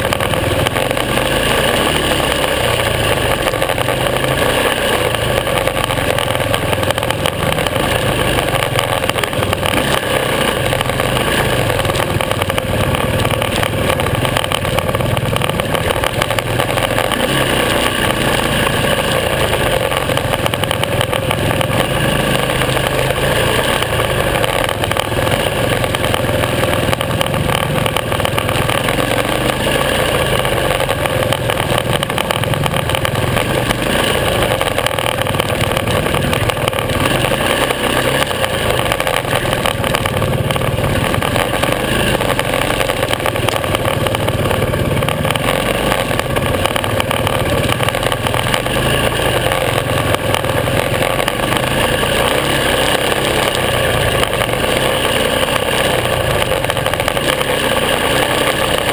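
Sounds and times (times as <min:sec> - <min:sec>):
motorcycle engine revving: 0:00.0 - 0:58.9.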